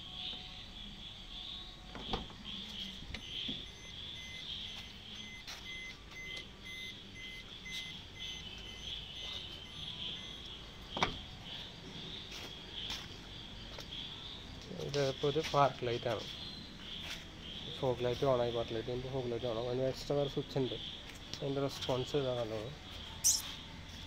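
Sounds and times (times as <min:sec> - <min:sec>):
crickets chirping: 0:00.0 - 0:24.0
faint repeating electronic beep: 0:00.1 - 0:11.6, 0:22.5 - 0:23.7.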